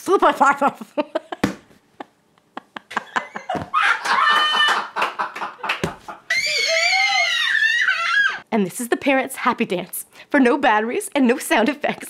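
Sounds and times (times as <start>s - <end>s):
woman laughing: 0.7s - 6.6s.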